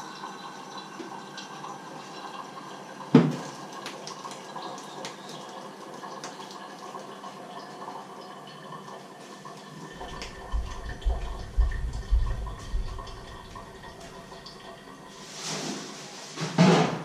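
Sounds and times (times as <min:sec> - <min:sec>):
teapot knocking on hob: 0:03.2 - 0:03.4, 0:10.0 - 0:13.9.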